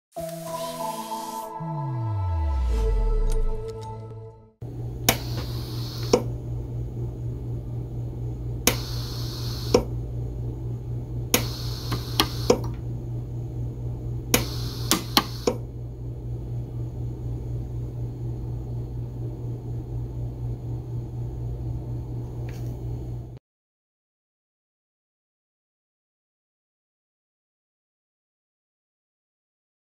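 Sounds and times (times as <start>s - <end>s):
steady low hum: 1.7s - 23.4s
welder hissing: 5.1s - 6.3s, 8.7s - 9.9s, 11.4s - 12.7s, 14.3s - 15.6s
sharp snaps of weld pulses: 8.7s - 9.9s, 11.4s - 12.7s, 14.4s - 15.6s.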